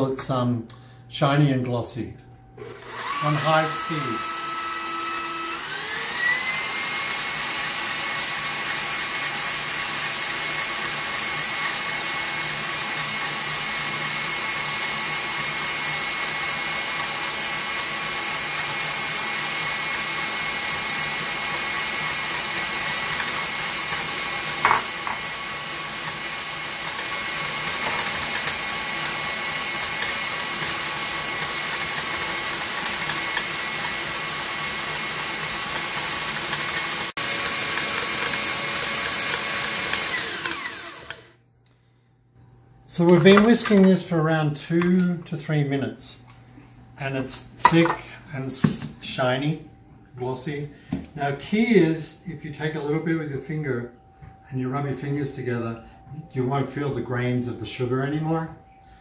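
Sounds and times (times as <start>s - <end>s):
stand mixer whining: 2.6s - 41.4s
whisk beating egg whites: 3.0s - 41.2s.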